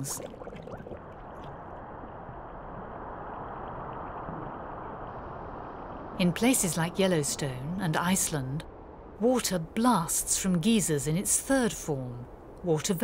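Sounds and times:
boiling water gurgling: 0.0 - 1.8.

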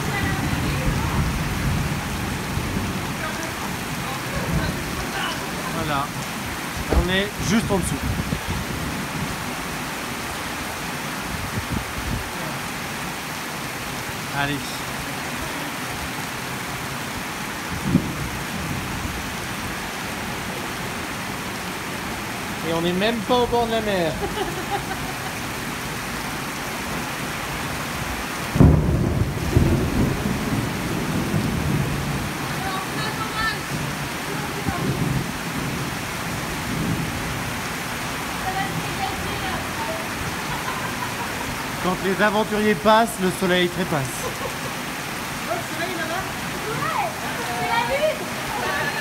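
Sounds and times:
thunder rumble: 0.0 - 9.6, 17.5 - 20.5, 27.9 - 42.2
torrential rain on road: 0.0 - 49.0.

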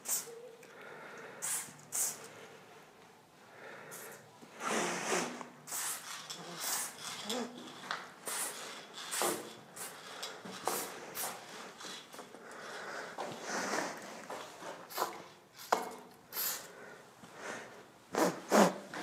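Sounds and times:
spray paint can hissing: 0.0 - 0.4, 1.4 - 2.3, 4.9 - 12.2, 14.9 - 16.7.

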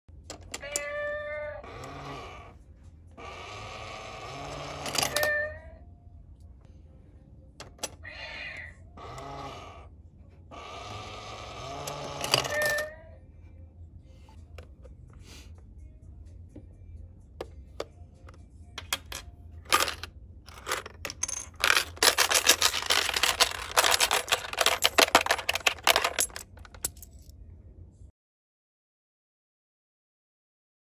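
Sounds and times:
coin bank sound effect: 4.4 - 5.3, 11.6 - 12.9, 18.8 - 27.1.

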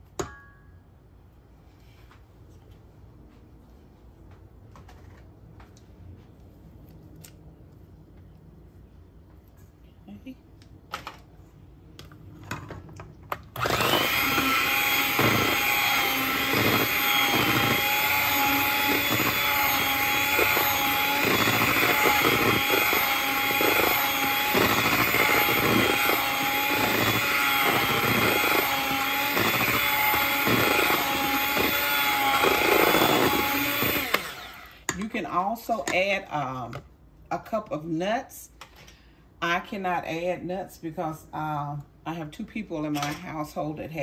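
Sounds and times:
electric hand mixer whining: 13.6 - 34.9.

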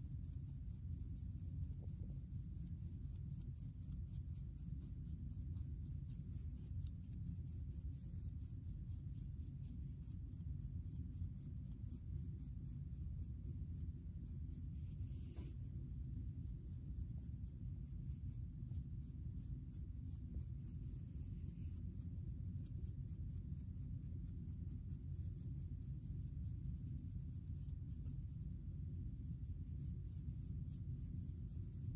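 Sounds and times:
steady low hum: 0.0 - 31.9.

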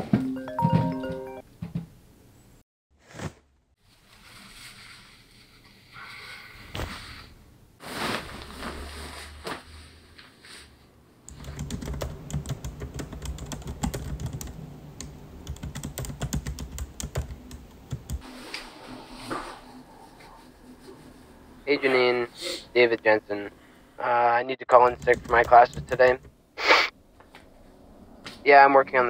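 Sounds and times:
laptop keyboard typing: 11.3 - 18.2, 24.8 - 26.3.

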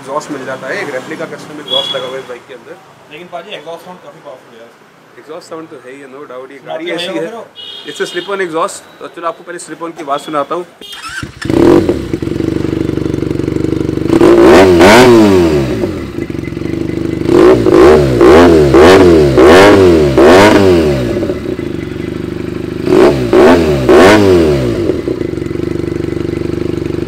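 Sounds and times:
motorcycle engine idling and revving: 10.9 - 27.0.

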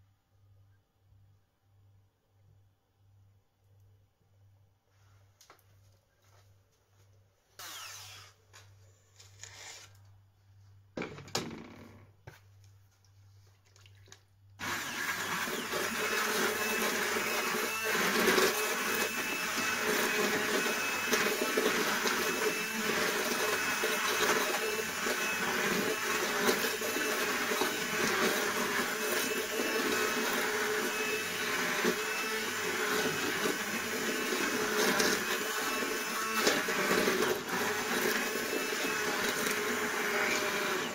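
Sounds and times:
immersion blender running: 7.6 - 8.3, 14.6 - 40.9.

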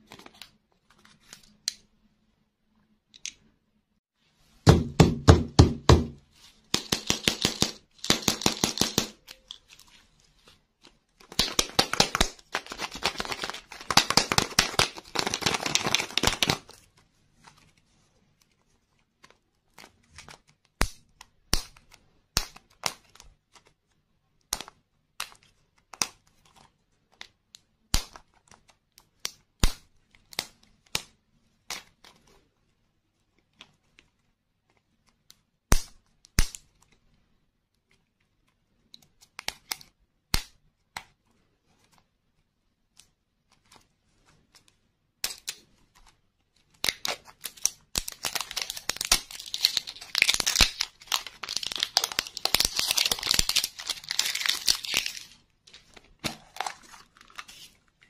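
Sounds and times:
plastic clicks and snaps: 3.1 - 3.4
wrapper crinkling: 11.2 - 16.8, 46.9 - 58.0.

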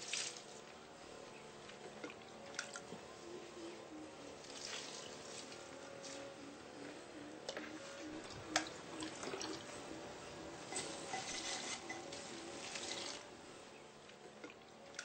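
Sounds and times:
water splashing onto leaves and soil: 0.0 - 0.5, 4.4 - 5.6.

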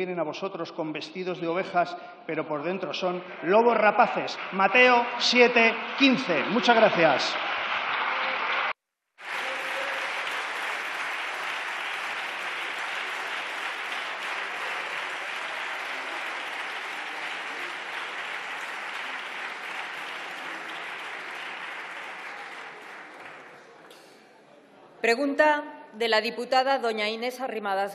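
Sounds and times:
dense clapping: 4.0 - 24.1.

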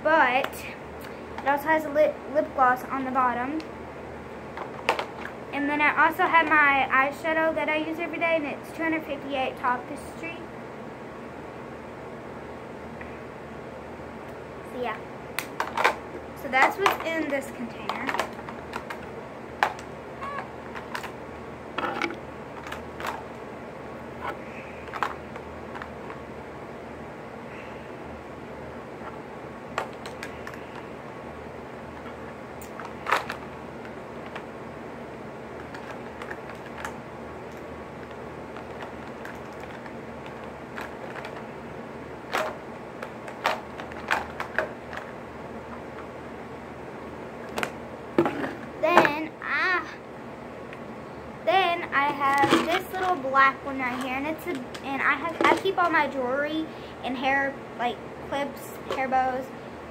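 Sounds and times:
steady low hiss: 0.0 - 59.9
makeup items clicking and tapping: 35.6 - 41.4.

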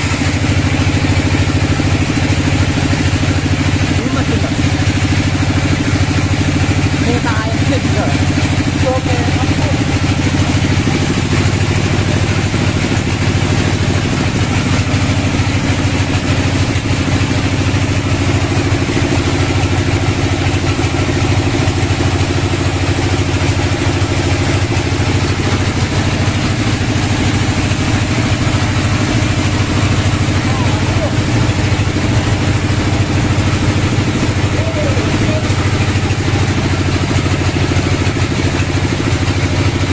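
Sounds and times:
engine idling: 0.0 - 39.9.

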